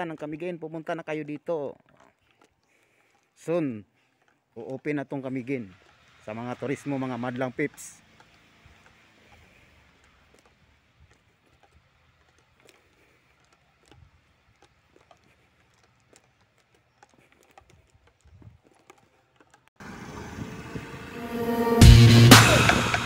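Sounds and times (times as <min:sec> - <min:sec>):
faint clicks: 0:00.0 - 0:19.8
background music: 0:20.4 - 0:23.0.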